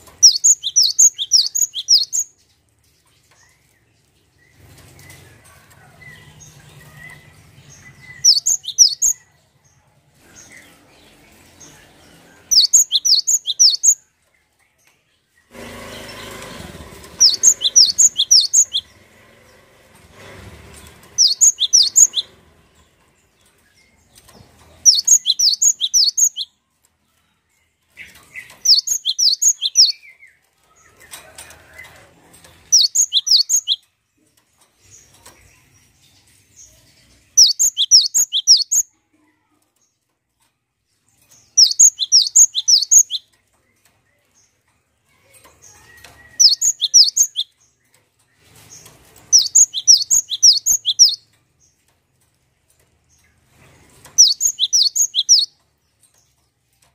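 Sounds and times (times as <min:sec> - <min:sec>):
bird rapid high chirping: 0:00.0 - 0:02.4, 0:06.1 - 0:09.2, 0:12.4 - 0:14.0, 0:17.1 - 0:19.0, 0:21.1 - 0:22.4, 0:24.7 - 0:26.6, 0:28.0 - 0:30.1, 0:32.7 - 0:33.9, 0:37.1 - 0:38.9, 0:41.5 - 0:43.3, 0:45.7 - 0:47.6, 0:48.5 - 0:51.3, 0:54.1 - 0:55.6.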